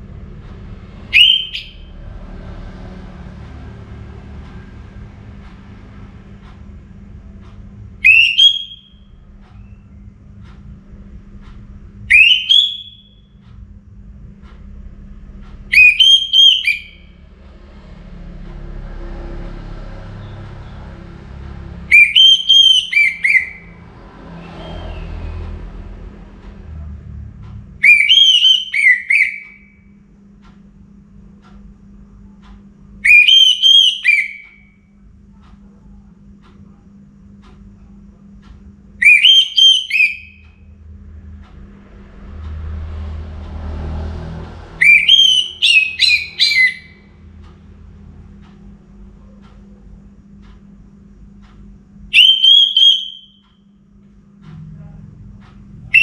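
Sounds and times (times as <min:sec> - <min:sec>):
thrush singing whistled song: 0:01.0 - 0:02.0, 0:08.0 - 0:10.0, 0:12.1 - 0:13.4, 0:15.7 - 0:17.2, 0:21.9 - 0:25.5, 0:27.8 - 0:29.9, 0:33.0 - 0:34.8, 0:39.0 - 0:40.8, 0:44.7 - 0:47.2, 0:52.1 - 0:53.7.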